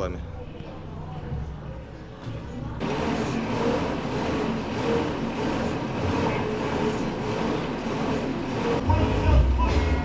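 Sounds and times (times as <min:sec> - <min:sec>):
fan flywheel whirring: 0:02.2 - 0:10.0.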